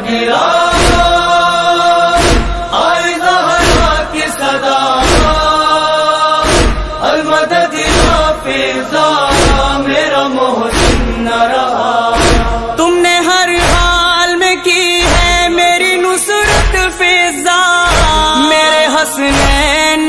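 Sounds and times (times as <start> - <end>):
chorus chanting held notes: 0.0 - 12.8
deep drum thump: 2.2 - 2.8, 5.0 - 5.5, 6.4 - 7.0, 9.3 - 9.8, 10.7 - 11.2, 12.2 - 12.8.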